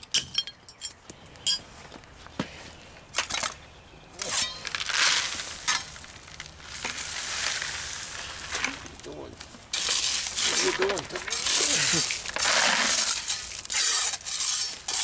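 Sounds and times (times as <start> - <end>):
gravel pouring: 4.2 - 15.0.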